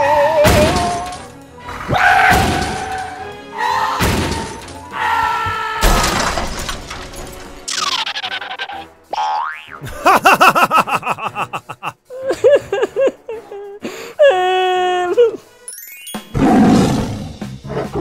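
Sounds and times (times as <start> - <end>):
background music: 0.0 - 18.0
cartoon crash and smash effects: 2.3 - 3.0, 4.0 - 4.7, 5.8 - 8.1.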